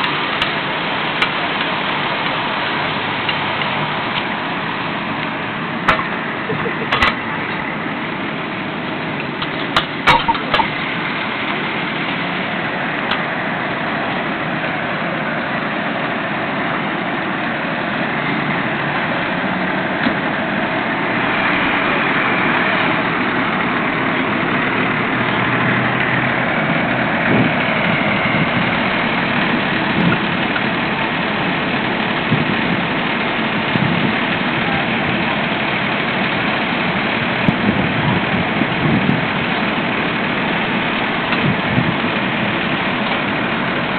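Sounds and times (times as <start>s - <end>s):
fire engine idling: 0.0s - 43.9s.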